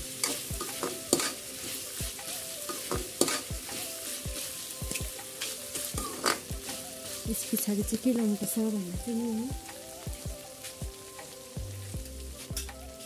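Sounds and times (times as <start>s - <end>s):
frying sizzle: 0.0s - 13.0s
metal spatula scraping a pan: 0.1s - 7.3s.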